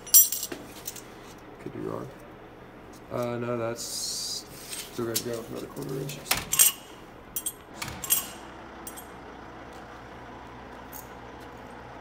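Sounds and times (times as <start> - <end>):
sharp metallic clinks: 0.0 - 1.0, 7.4 - 9.1
low engine hum: 7.2 - 12.0.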